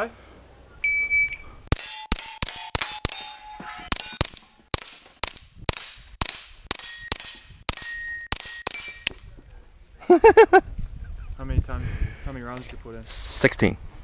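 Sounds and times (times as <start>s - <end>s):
steel target ringing: 1.7s - 4.6s, 6.7s - 9.2s.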